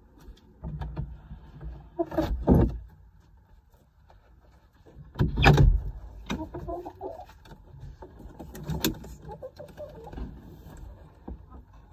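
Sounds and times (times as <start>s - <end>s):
hens clucking softly: 6.2s - 7.4s, 9.1s - 10.2s.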